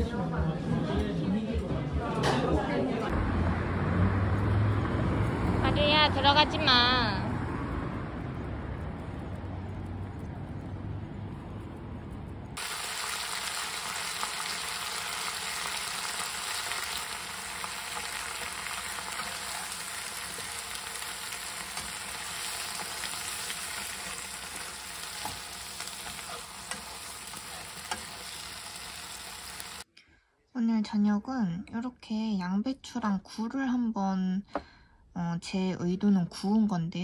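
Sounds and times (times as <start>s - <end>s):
food sizzling in a frying pan: 12.6s - 29.9s
spatula stirring: 18.0s - 28.7s.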